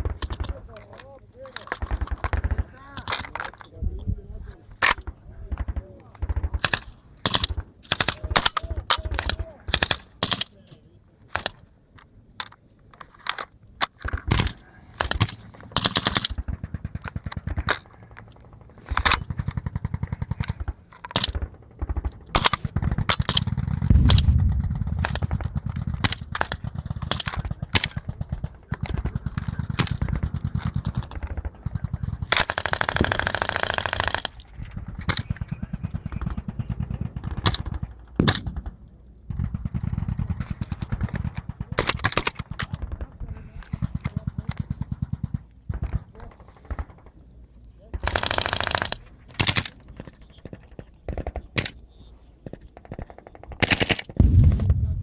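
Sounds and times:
rifle shots: 0:18.8 - 0:43.1, 0:52.8 - 0:55.0
automatic gunfire bursts: 0:18.9 - 0:38.7, 0:48.0 - 0:51.8, 0:52.8 - 0:54.7.

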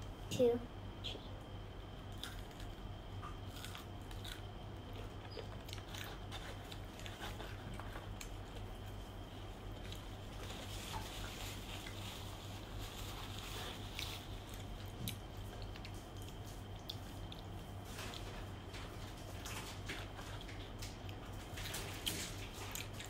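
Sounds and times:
crunching fried chicken: 0:02.1 - 0:23.0
paper napkin rustling: 0:10.4 - 0:14.6.

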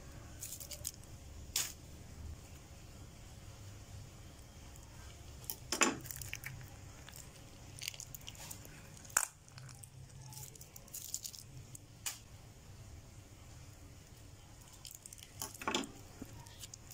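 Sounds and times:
piping bag squelching: 0:04.7 - 0:12.1, 0:14.6 - 0:16.9.

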